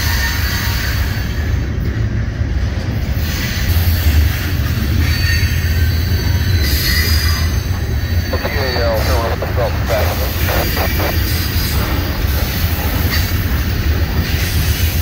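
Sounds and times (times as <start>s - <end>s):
train wheels rumbling on rail: 0.0s - 8.3s, 11.2s - 15.0s.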